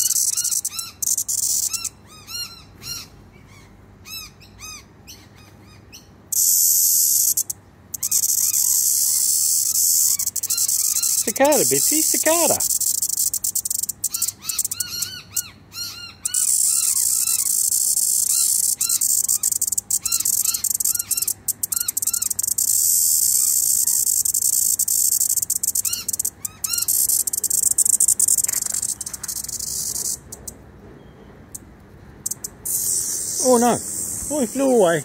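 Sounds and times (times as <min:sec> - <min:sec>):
cicada buzzing: 0:00.0 - 0:02.0, 0:06.3 - 0:15.4, 0:16.2 - 0:30.6, 0:32.2 - 0:35.0
birds chirping: 0:08.0 - 0:12.8, 0:14.0 - 0:22.4, 0:32.3 - 0:35.0.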